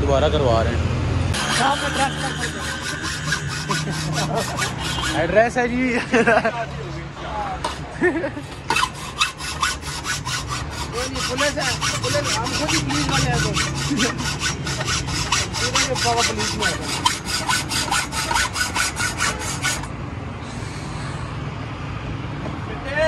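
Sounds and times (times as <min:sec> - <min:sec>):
hacksaw cutting metal pipe: 0:01.3 - 0:05.6, 0:07.6 - 0:07.9, 0:08.5 - 0:19.9.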